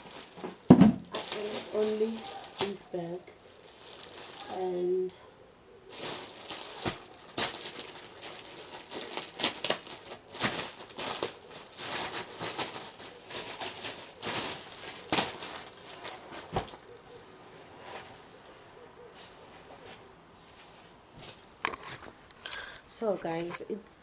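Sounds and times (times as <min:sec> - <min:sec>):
plastic packaging crinkling: 0:00.0 - 0:05.1, 0:05.9 - 0:17.0.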